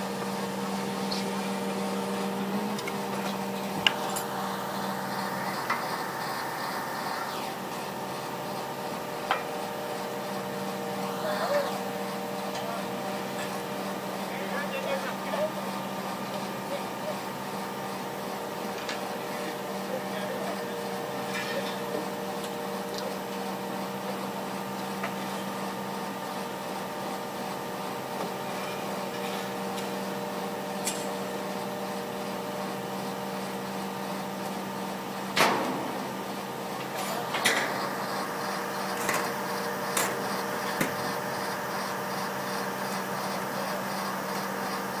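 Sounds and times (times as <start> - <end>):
crane engine humming: 0.0 - 45.0.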